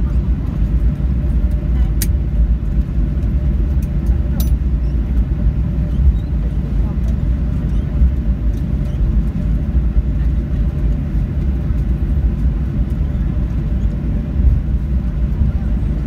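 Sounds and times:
jet engines: 0.0s - 16.0s.

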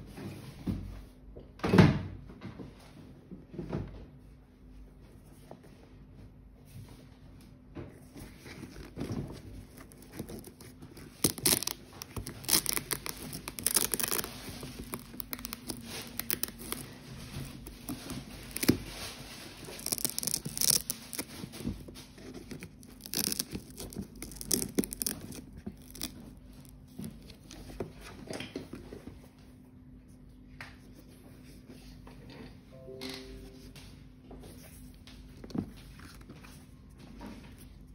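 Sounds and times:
hands rustling and crinkling paper: 7.9s - 29.4s.

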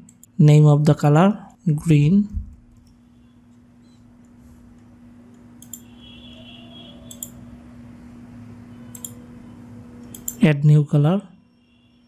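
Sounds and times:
low electrical hum: 0.0s - 12.0s
computer mouse clicks: 3.8s - 5.9s, 7.1s - 7.4s, 8.9s - 9.2s, 10.0s - 10.4s.

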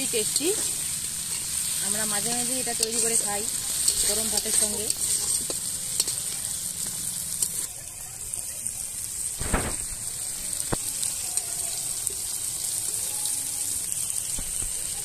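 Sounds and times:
metal spatula scraping: 0.0s - 7.7s
food sizzling in hot oil: 0.0s - 15.0s
spatula clicking: 2.2s - 7.7s.

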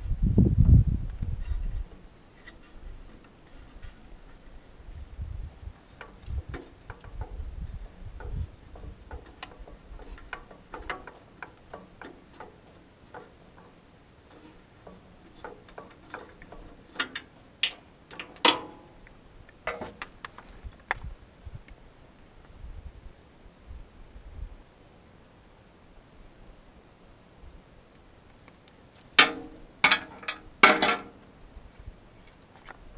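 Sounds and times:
hands clicking and tapping metal parts: 8.1s - 21.1s, 28.4s - 31.3s.

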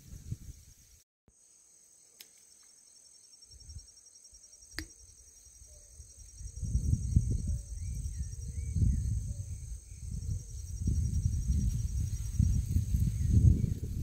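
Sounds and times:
insects chirring: 0.4s - 14.0s
low rumbling on microphone: 6.4s - 14.0s.

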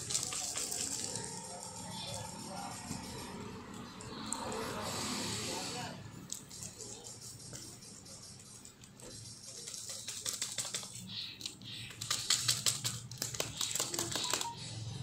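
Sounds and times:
plastic jar clicks and rattles: 0.0s - 1.4s.

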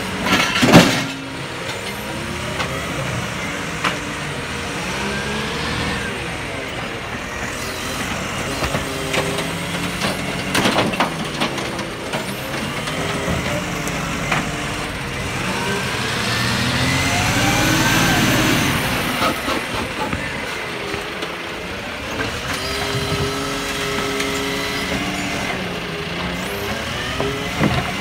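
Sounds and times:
diesel truck engine running: 0.0s - 28.0s
hydraulic whine: 12.2s - 21.3s.

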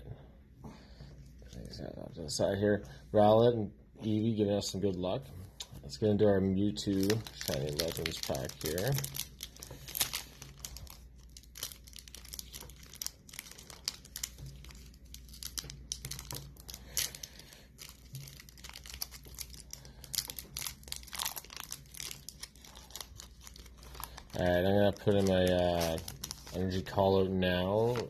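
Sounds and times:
foil wrapper crinkling and tearing: 6.6s - 28.0s.

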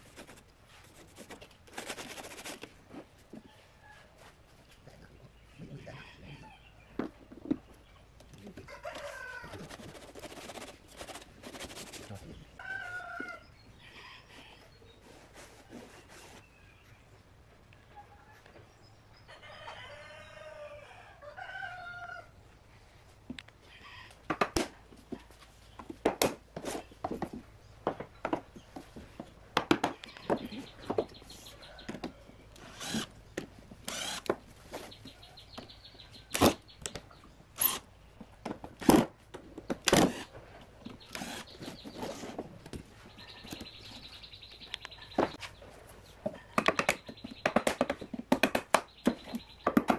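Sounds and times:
rooster crowing: 8.7s - 9.7s
cordless drill whirring: 32.6s - 33.1s, 33.9s - 34.3s.

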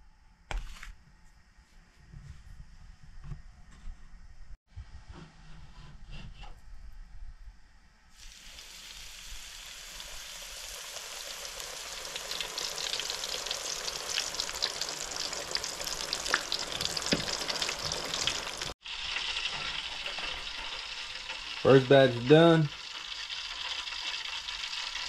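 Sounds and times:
food frying in hot oil: 8.2s - 25.0s.

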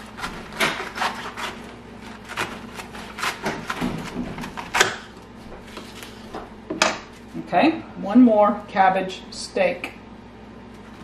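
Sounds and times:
knife crunching through cabbage: 0.0s - 6.3s.

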